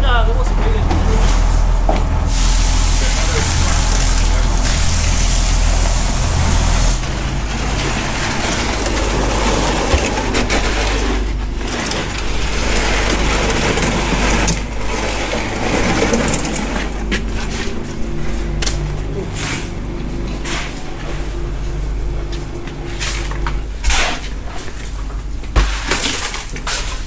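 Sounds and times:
low engine hum: 0.0s - 25.6s
hose water splashing on deck: 2.3s - 11.0s.

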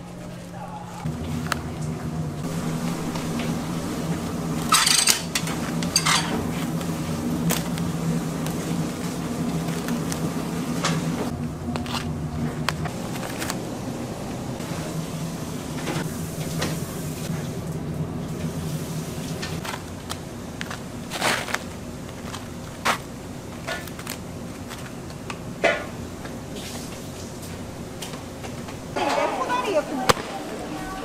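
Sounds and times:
low steady hum: 0.0s - 31.0s
kitchen knocks and clatter: 4.6s - 6.6s.

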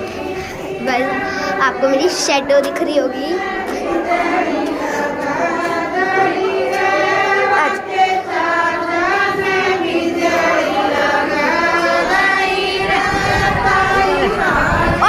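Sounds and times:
women singing folk song: 0.0s - 15.0s.

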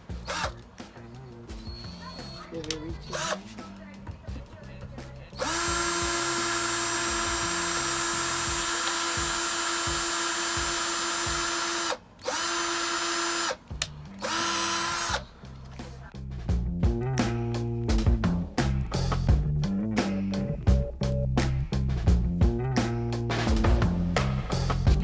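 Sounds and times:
cordless drill whining: 0.2s - 0.6s, 3.0s - 3.4s, 5.4s - 13.6s, 14.2s - 15.3s.

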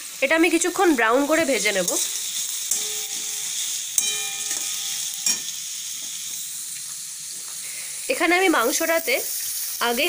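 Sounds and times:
onions sizzling in hot oil: 0.0s - 10.0s
metal spatula scraping pan: 1.4s - 5.6s
metallic pan squeal: 1.9s - 5.6s.

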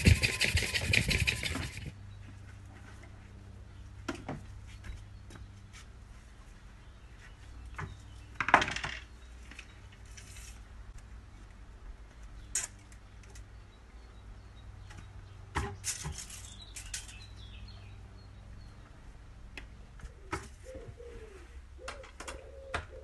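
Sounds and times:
wood and tools clattering: 7.8s - 10.6s.

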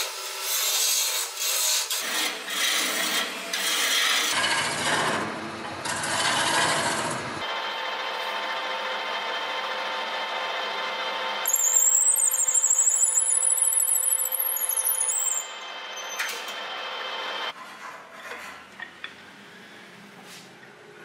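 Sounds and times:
drill bit squealing: 11.4s - 16.5s.

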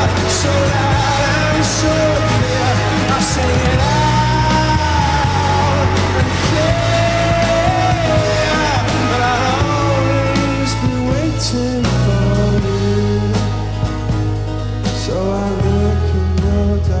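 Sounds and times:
person singing long notes: 0.0s - 13.9s
rock band playing live: 0.0s - 17.0s.

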